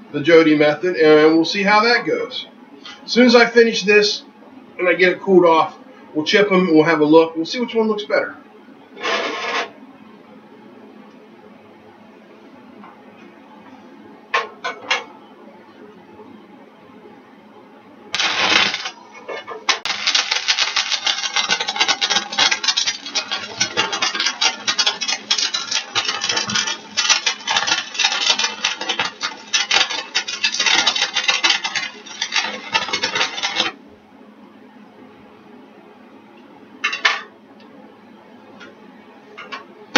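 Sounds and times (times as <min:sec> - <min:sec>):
welding arc crackling: 0:18.1 - 0:33.8.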